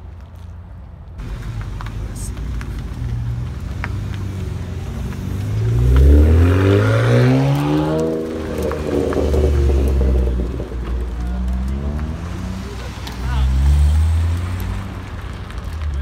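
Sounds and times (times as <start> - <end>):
another car engine rumbling: 1.2 - 16.0
car accelerating: 1.2 - 16.0.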